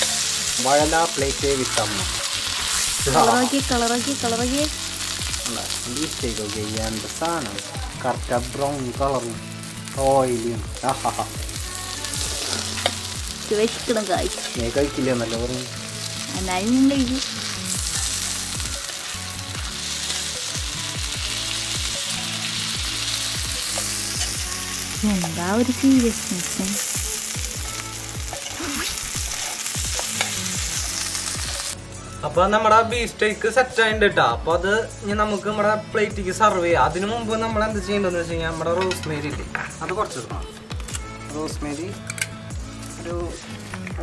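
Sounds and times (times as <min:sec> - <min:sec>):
steaks sizzling in pan: 0:00.0 - 0:31.8.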